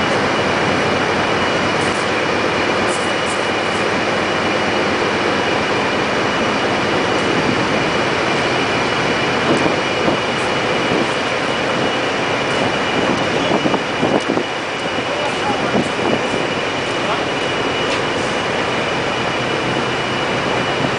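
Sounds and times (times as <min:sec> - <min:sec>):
crane engine and hydraulics: 0:00.0 - 0:20.9
high machine whine: 0:00.0 - 0:20.9.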